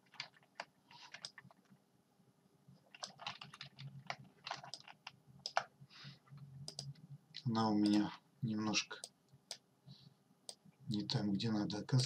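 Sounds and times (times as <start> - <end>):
computer keyboard and mouse clicks: 0.0 - 1.6, 2.8 - 5.7, 6.6 - 7.0, 7.8 - 8.1.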